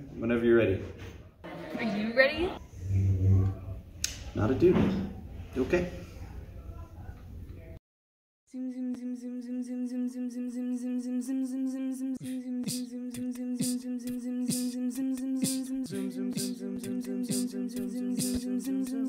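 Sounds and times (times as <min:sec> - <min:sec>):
a cappella voices humming: 0:02.6 - 0:03.9, 0:08.5 - 0:19.0
beatboxed percussion: 0:12.2 - 0:19.0.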